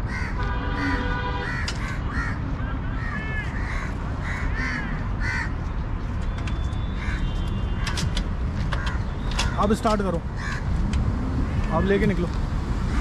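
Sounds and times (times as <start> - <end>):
crows cawing: 0.0 - 5.6, 7.0 - 7.4, 8.7 - 9.6, 10.3 - 10.8.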